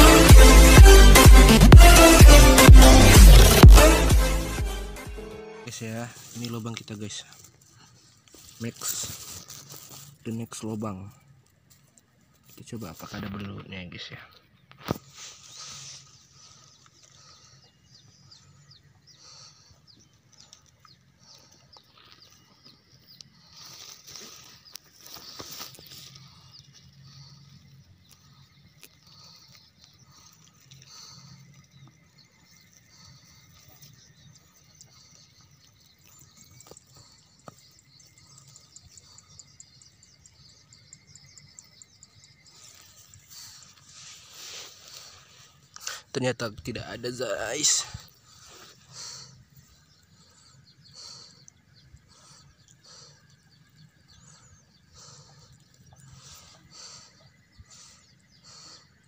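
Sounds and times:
rustling grass and wet mud: 5.7s - 59.0s
high-pitched insect chirping: 15.0s - 59.0s.

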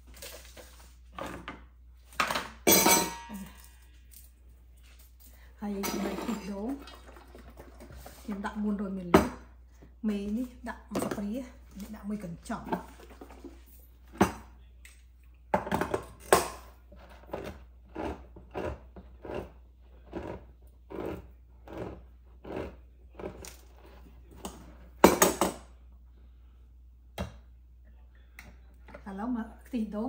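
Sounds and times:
utensils and bowls clinking: 2.2s - 3.8s, 5.8s - 7.9s.

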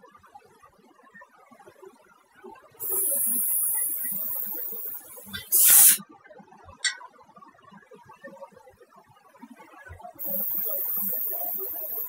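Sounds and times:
blast of air: 2.8s - 6.0s
brief puff of air: 2.8s - 6.0s
spray guns hissing: 2.8s - 6.0s, 10.2s - 12.0s.

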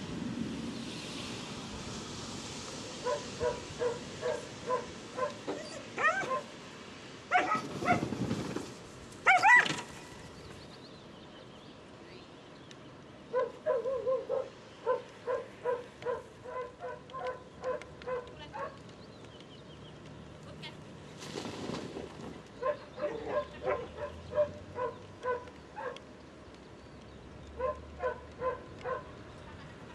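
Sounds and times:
dog barking: 3.0s - 6.5s, 7.3s - 8.0s, 13.3s - 18.8s, 22.6s - 26.0s, 27.6s - 29.1s
dog yelping: 3.1s - 6.5s, 7.3s - 8.0s, 9.3s - 9.8s, 13.4s - 18.7s.

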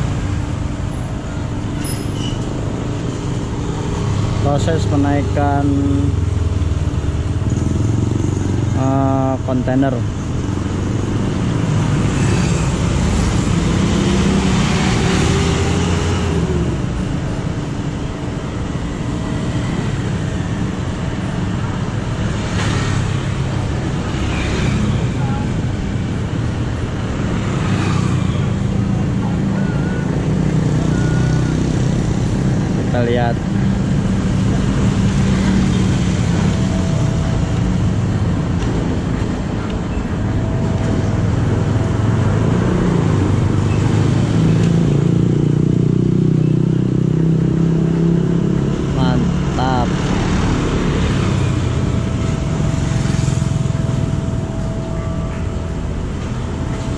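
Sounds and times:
motorcycles passing close by: 3.0s - 17.2s, 21.3s - 56.9s
small motorcycles passing: 33.8s - 56.9s.

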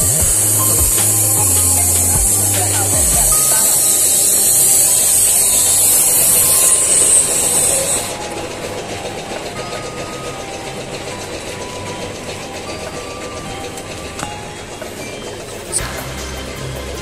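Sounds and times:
air hissing from hose nozzle: 0.0s - 8.3s.

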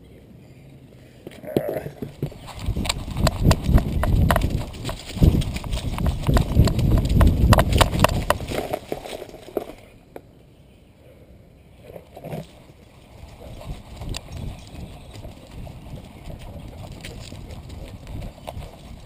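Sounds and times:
dog's thumping footfalls: 2.2s - 8.7s.

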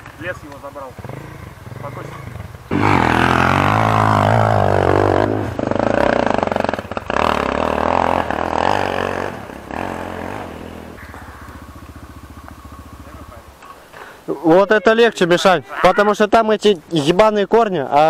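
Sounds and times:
dirt bike engine revving: 0.0s - 15.4s.

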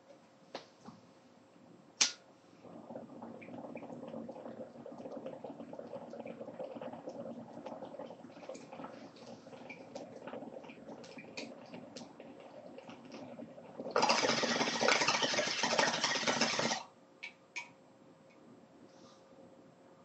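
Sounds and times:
sharp click: 2.0s - 2.2s
water bubbling in a bong: 2.6s - 16.9s.

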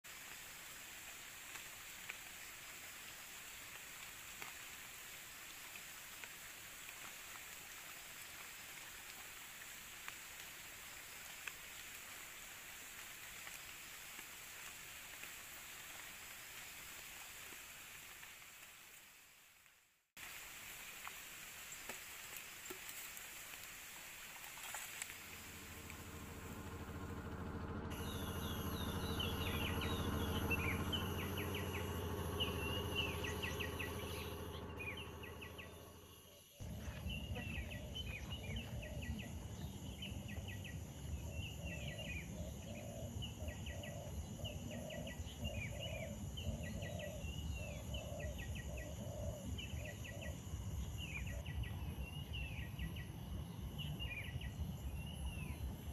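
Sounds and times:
steady low hum: 24.7s - 55.9s
low rumble: 25.1s - 43.6s
pulsing call: 25.5s - 36.0s.

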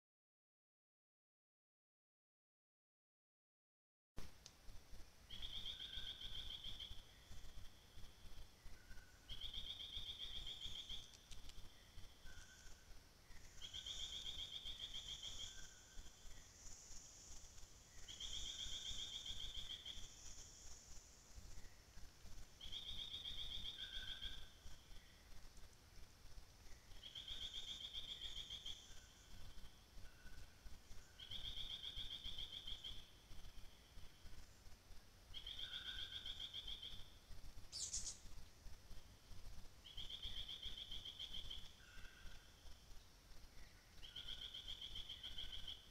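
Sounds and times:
fainter lower bird notes: 5.2s - 25.4s, 35.4s - 38.3s
insects hissing: 5.2s - 45.9s.

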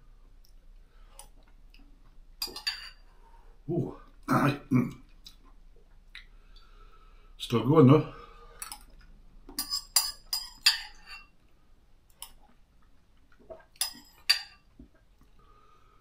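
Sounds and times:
metal spoon clinking ceramic bowl: 2.4s - 3.0s, 9.6s - 11.3s, 13.8s - 14.6s.

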